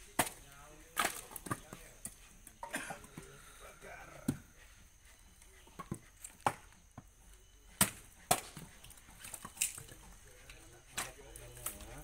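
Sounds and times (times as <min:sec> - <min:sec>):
blade chopping wood: 0:00.0 - 0:01.8, 0:07.7 - 0:08.6.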